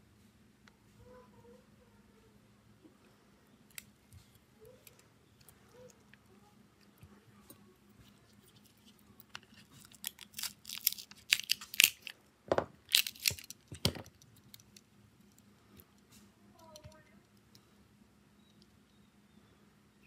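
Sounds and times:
thin plastic crinkling and tearing: 3.6s - 12.2s, 12.8s - 15.5s.

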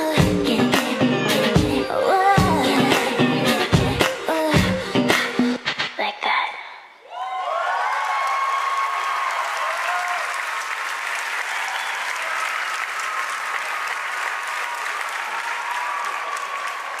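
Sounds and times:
high cheers and whoops: 7.0s - 17.0s
audience clapping: 7.6s - 17.0s.

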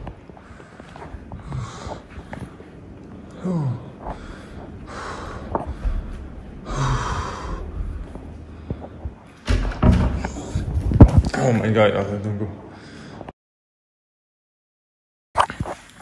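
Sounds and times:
man breathing heavily and gasping: 0.4s - 9.3s.

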